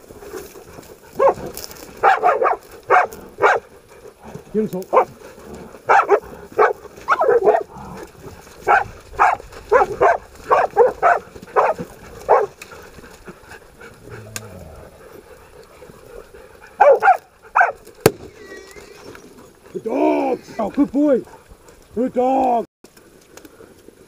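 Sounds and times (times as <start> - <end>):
dogs barking: 0.8 - 4.2, 4.8 - 17.9.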